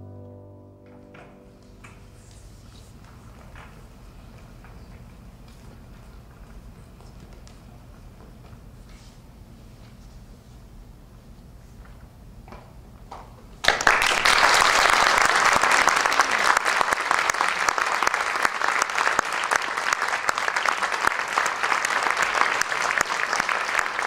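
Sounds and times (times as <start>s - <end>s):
audience applauding: 13.6s - 24.0s.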